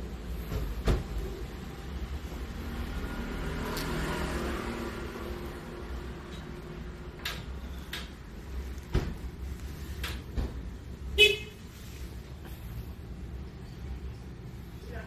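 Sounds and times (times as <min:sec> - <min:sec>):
street traffic rumble: 0:00.0 - 0:15.0
vehicle horn toot: 0:11.2 - 0:11.6.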